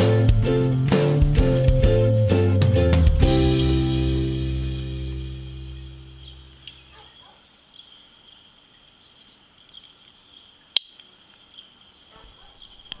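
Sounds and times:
insects chirring: 6.0s - 13.0s.

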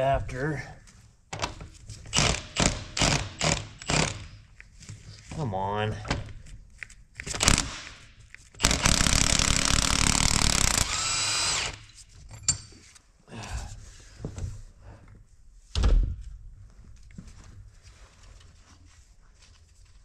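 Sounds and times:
impact wrench hammering: 2.1s - 4.3s, 7.3s - 12.0s.

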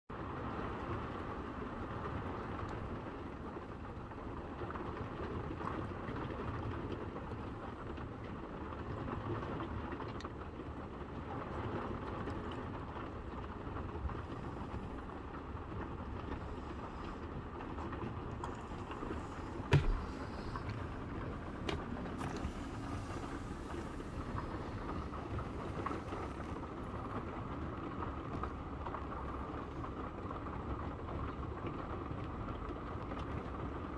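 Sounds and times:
heavy rain: 0.1s - 33.9s
rushing floodwater: 10.0s - 33.9s
sharp knock: 19.7s - 20.2s.

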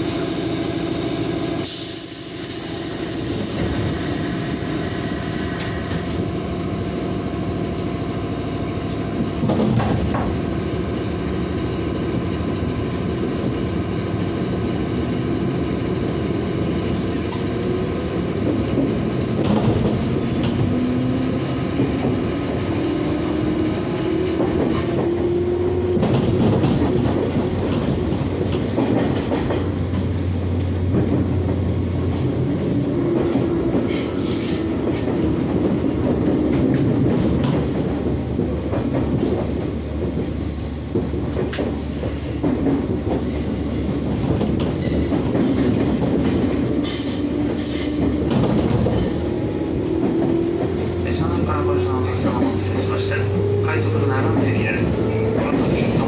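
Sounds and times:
wheels clattering on rail joints: 8.6s - 14.8s, 16.4s - 56.0s
train traction motors whining: 43.9s - 56.0s.

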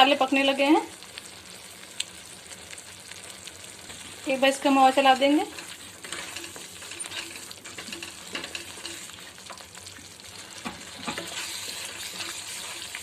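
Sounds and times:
paste sizzling in oil: 0.0s - 13.0s
spatula scraping a pan: 5.3s - 9.6s, 10.2s - 13.0s.

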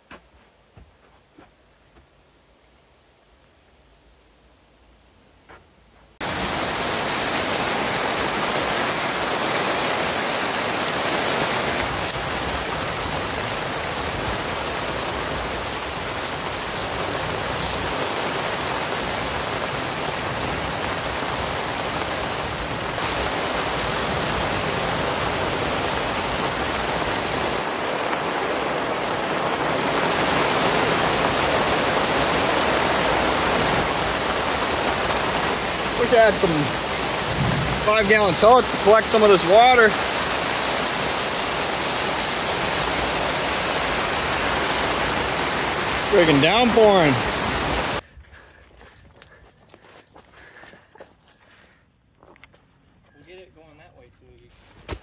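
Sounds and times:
heavy rain downpour: 6.2s - 48.0s.

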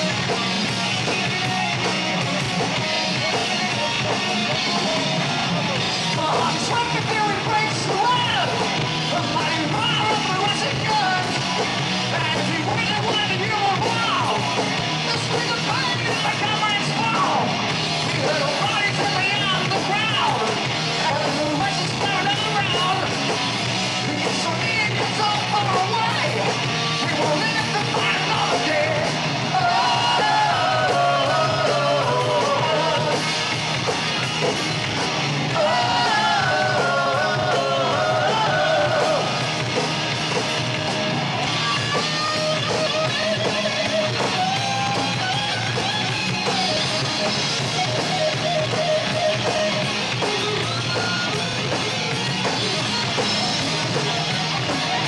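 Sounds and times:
bass guitar: 0.0s - 55.0s
distorted electric guitar: 0.0s - 55.0s
drum kit: 0.0s - 55.0s
person singing lead vocal: 6.1s - 17.5s, 18.1s - 23.1s, 24.0s - 33.3s, 35.5s - 39.6s.

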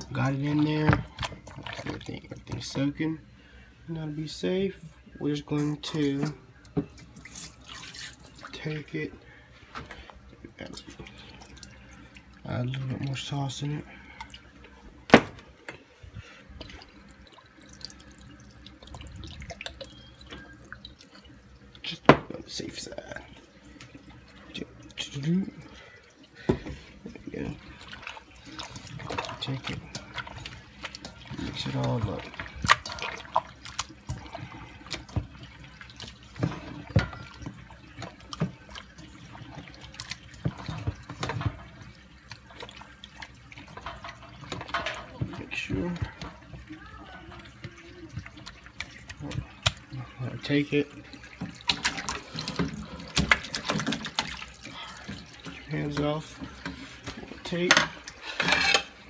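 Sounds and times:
hand squelching meat in marinade: 27.6s - 41.3s.

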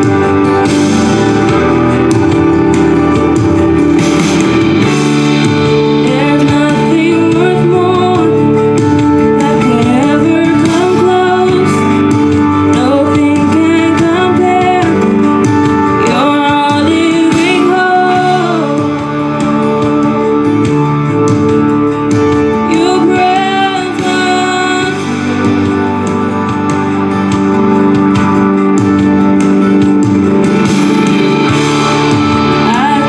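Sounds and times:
electric keyboard: 0.0s - 33.0s
woman singing gospel: 6.0s - 21.4s, 22.6s - 27.3s, 32.4s - 33.0s.

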